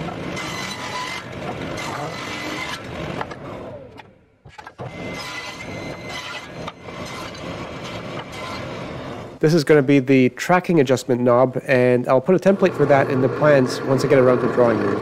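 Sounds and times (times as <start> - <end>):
table saw cutting wood: 0.0 - 4.0, 4.7 - 9.4, 12.4 - 15.0.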